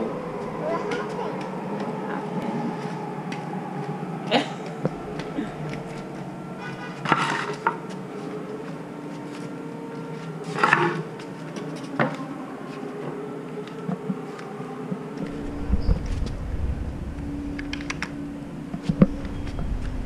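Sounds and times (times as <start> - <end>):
low background hum: 15.2 - 20.0.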